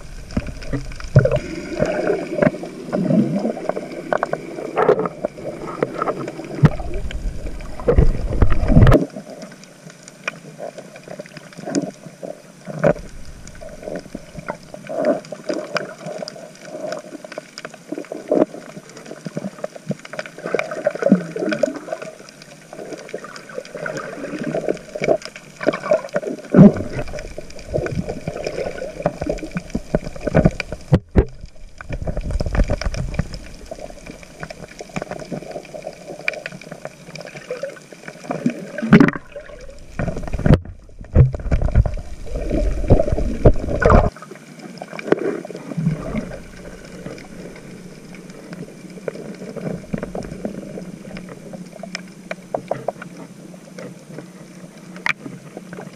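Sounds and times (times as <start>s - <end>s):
muffled underwater water movement: 0.0s - 55.9s.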